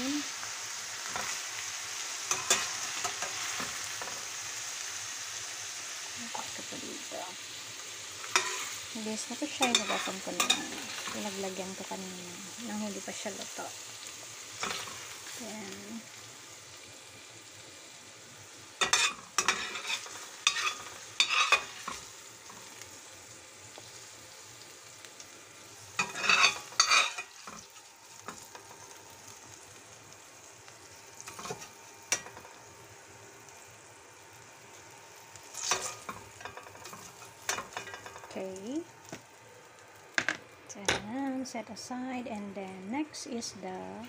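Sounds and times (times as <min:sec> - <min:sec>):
oil sizzling in a frying pan: 0:00.0 - 0:44.0
metal spatula scraping a pan: 0:02.3 - 0:04.2, 0:08.2 - 0:08.8, 0:09.4 - 0:11.5, 0:14.6 - 0:15.4, 0:18.8 - 0:22.8, 0:26.0 - 0:28.7, 0:35.4 - 0:38.4.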